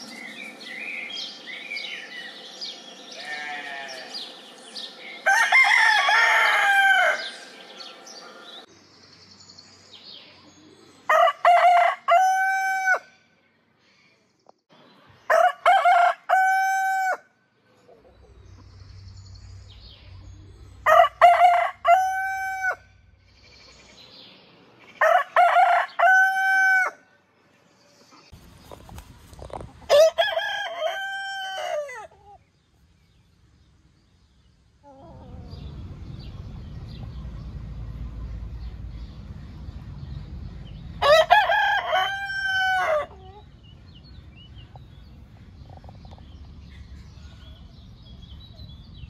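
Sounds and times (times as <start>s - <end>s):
roosters crowing: 0.6s - 8.6s, 11.1s - 13.2s, 15.2s - 17.3s, 20.7s - 23.1s, 24.8s - 27.1s, 29.5s - 32.4s, 40.7s - 43.5s.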